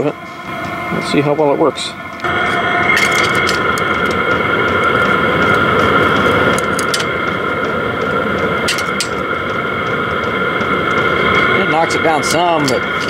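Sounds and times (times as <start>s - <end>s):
diesel air heater exhaust drone: 0.0s - 13.0s
sharp ticks: 2.9s - 13.0s.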